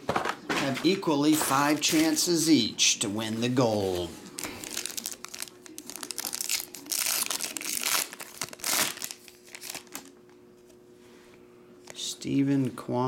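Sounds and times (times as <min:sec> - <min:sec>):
foil wrapper crinkling and tearing: 0:04.3 - 0:10.2.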